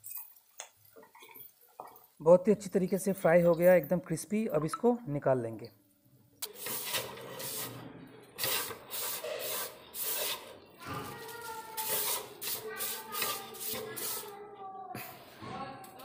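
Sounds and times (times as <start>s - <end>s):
tissue scrubbing a wok: 6.4s - 14.5s.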